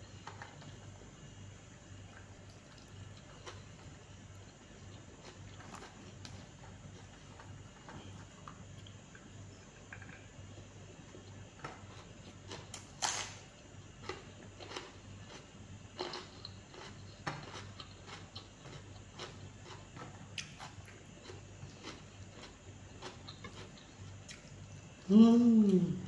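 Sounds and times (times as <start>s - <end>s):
person chewing and mouth smacks: 2.1s - 10.3s, 14.0s - 25.0s.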